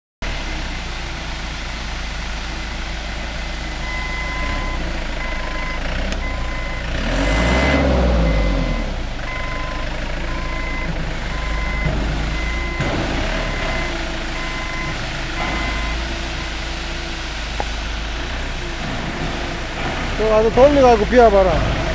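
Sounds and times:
forklift engine running: 0:00.2 - 0:21.9
warning alarm beeping: 0:03.8 - 0:16.7.

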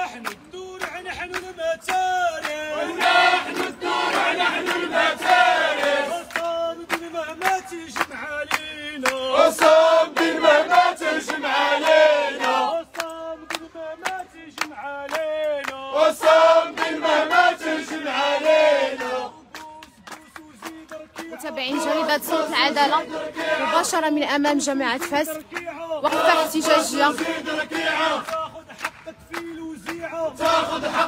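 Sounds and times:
hand claps: 0:00.0 - 0:02.7, 0:03.5 - 0:10.4, 0:11.2 - 0:17.0, 0:19.3 - 0:21.5, 0:25.0 - 0:31.0
crowd chanting slogans: 0:00.0 - 0:31.0.

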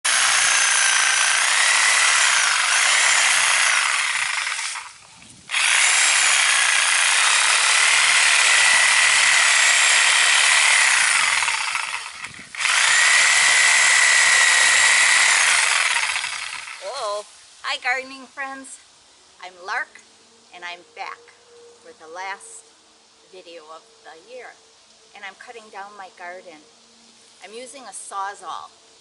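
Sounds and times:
reciprocating saw cutting roots: 0:00.0 - 0:17.2.

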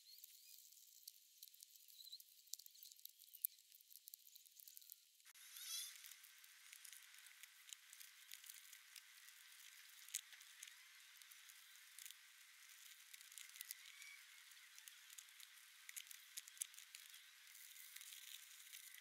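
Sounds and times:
small scattered clicks: 0:00.2 - 0:05.0, 0:05.6 - 0:19.0
plastic packaging crinkling: 0:06.0 - 0:19.0.

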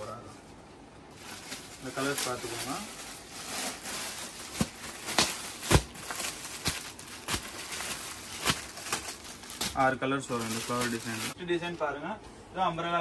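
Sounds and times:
garments rustling: 0:01.1 - 0:11.4.

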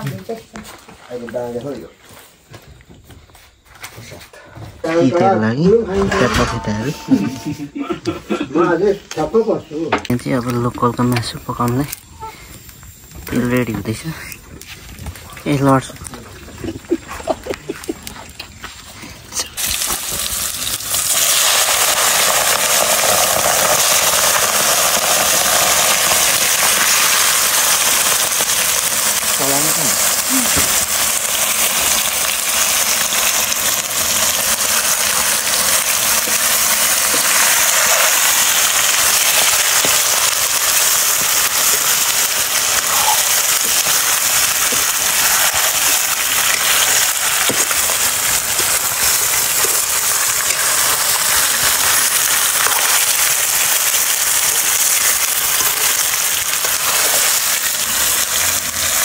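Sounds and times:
oil sizzling in a pan: 0:19.6 - 0:59.0.

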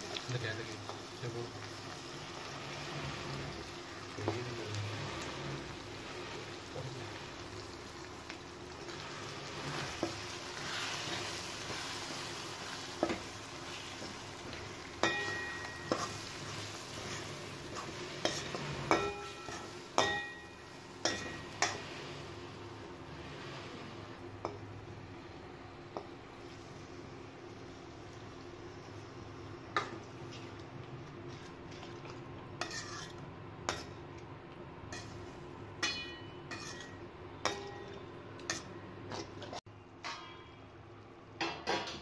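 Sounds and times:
vegetables sizzling in oil: 0:00.0 - 0:39.6
ladle stirring in pan: 0:08.8 - 0:24.8, 0:29.8 - 0:34.0, 0:34.9 - 0:40.6.

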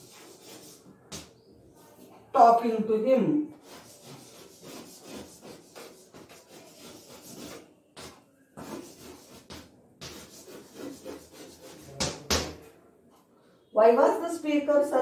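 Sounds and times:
chalk scratching on blackboard: 0:00.0 - 0:01.3, 0:03.5 - 0:12.4.

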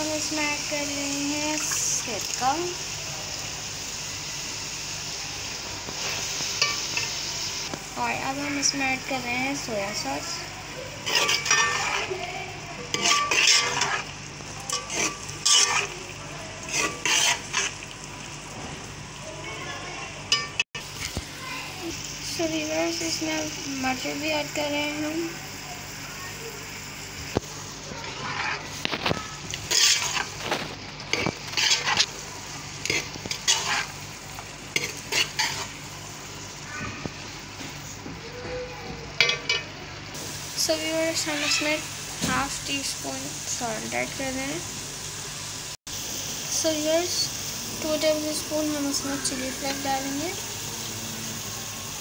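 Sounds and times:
vegetables sizzling in oil: 0:00.0 - 0:52.0
metal ladle scraping a steel pot: 0:11.0 - 0:12.2, 0:12.9 - 0:14.1, 0:14.7 - 0:16.0, 0:16.7 - 0:17.7, 0:28.0 - 0:28.9, 0:29.6 - 0:32.1, 0:32.8 - 0:33.9.

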